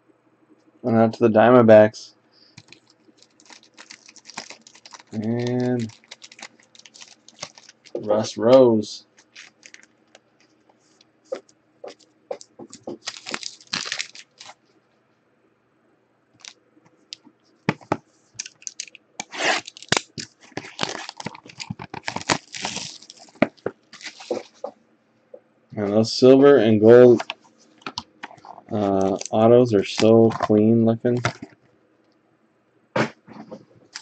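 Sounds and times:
plastic shrink wrap tearing and crinkling: 0:02.6 - 0:08.1, 0:09.1 - 0:10.2, 0:11.4 - 0:14.6, 0:18.4 - 0:24.7, 0:27.2 - 0:30.6, 0:31.2 - 0:31.6.

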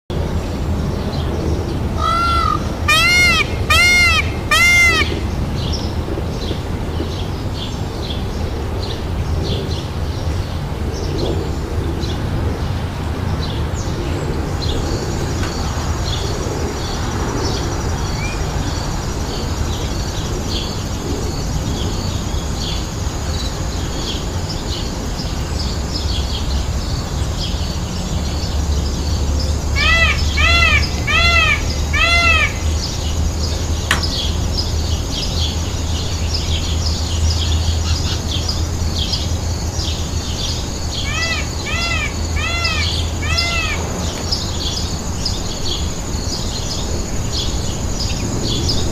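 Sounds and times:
steady low rumble: 0:00.1 - 0:48.9
loud rising and falling calls: 0:02.0 - 0:05.4, 0:29.7 - 0:33.2, 0:40.9 - 0:44.9
small birds chirping: 0:14.6 - 0:48.9.

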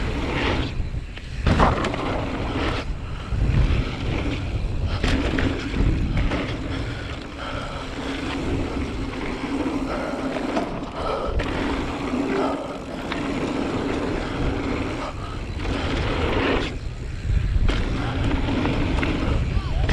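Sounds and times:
bike rattling: 0:00.0 - 0:19.9
wind buffeting microphone: 0:00.0 - 0:19.9
tyres rolling on gravel: 0:03.8 - 0:19.5.

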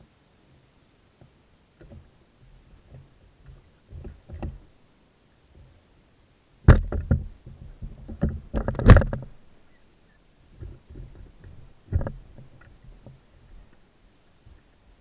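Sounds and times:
oar knocking against oarlock: 0:02.9 - 0:04.7, 0:06.7 - 0:09.3, 0:10.6 - 0:13.2.

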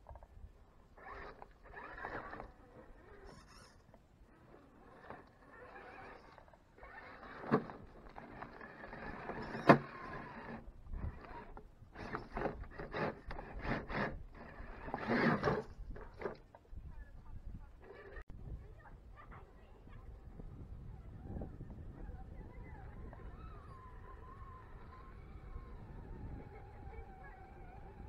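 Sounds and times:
rc car motor whining: 0:01.0 - 0:15.8, 0:22.4 - 0:28.0
tyres scraping on rock: 0:01.0 - 0:16.6.

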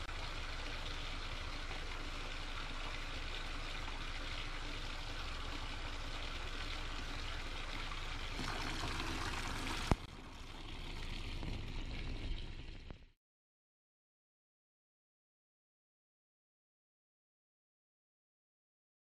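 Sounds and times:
water splashing into a tub: 0:00.0 - 0:13.2.

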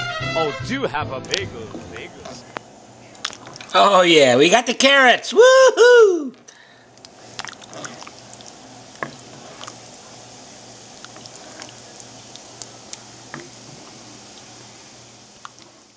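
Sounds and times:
soup simmering with bubbles popping: 0:01.7 - 0:03.8, 0:06.4 - 0:15.9.

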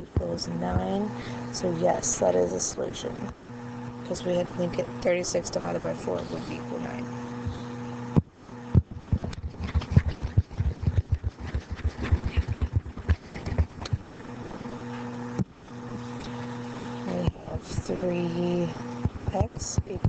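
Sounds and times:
low electrical hum: 0:00.0 - 0:20.0
stylus clicking and tapping: 0:08.8 - 0:14.0.

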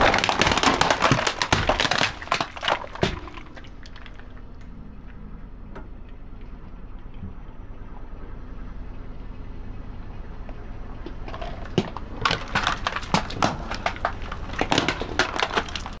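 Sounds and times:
plastic cracking under tyre: 0:00.0 - 0:04.7, 0:11.0 - 0:16.0
low steady hum: 0:00.0 - 0:16.0.

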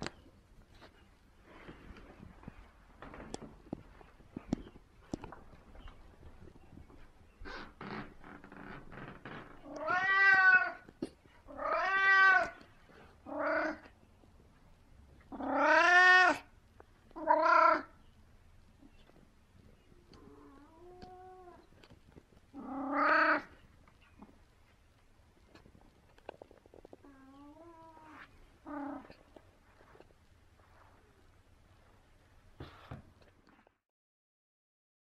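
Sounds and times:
cat meowing loudly: 0:09.6 - 0:10.8, 0:11.5 - 0:12.6, 0:15.3 - 0:16.5, 0:22.6 - 0:23.5.

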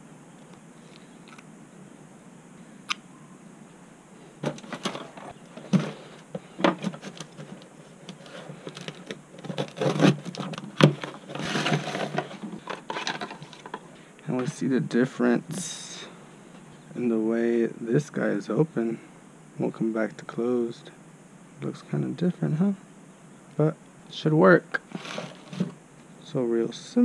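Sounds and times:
plastic bag rustling: 0:04.4 - 0:14.6, 0:24.9 - 0:25.8
cardboard box being opened: 0:06.7 - 0:13.6.

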